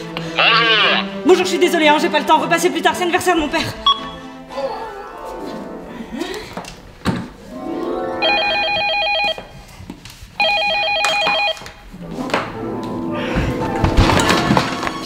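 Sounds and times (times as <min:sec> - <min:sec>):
telephone ringing: 0:08.2 - 0:09.6, 0:10.4 - 0:11.8.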